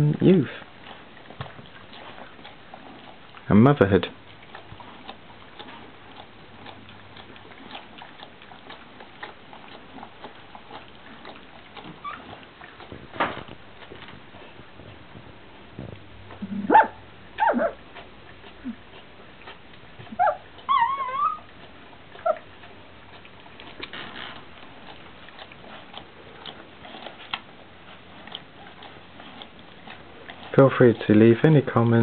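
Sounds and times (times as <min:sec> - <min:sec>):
puppies squeaking and yelping: 0:11.9 - 0:12.4, 0:16.6 - 0:17.8, 0:20.1 - 0:21.6, 0:22.2 - 0:22.5
puppy whining: 0:11.9 - 0:12.4, 0:16.4 - 0:17.9, 0:20.0 - 0:22.5.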